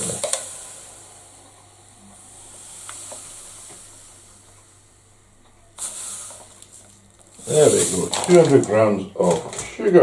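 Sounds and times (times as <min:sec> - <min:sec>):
sugar pouring into plastic bowl: 0:00.0 - 0:01.3, 0:05.8 - 0:09.7.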